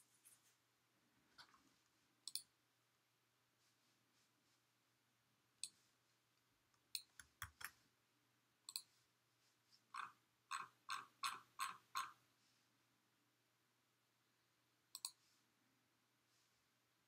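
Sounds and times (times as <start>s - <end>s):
computer mouse clicks: 2.3s - 2.5s, 6.8s - 7.8s, 8.7s - 8.9s, 14.9s - 15.2s.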